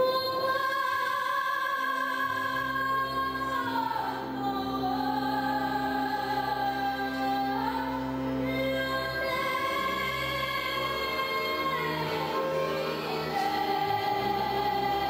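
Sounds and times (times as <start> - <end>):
instrumental accompaniment: 2.0 - 15.0.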